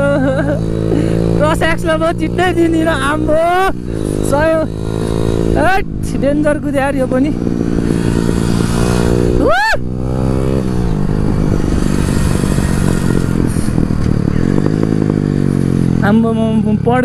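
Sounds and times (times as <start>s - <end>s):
motorcycle engine revving: 0.0s - 17.0s
rising and falling whoop: 9.3s - 10.0s
exhaust pops and crackles: 11.0s - 15.6s.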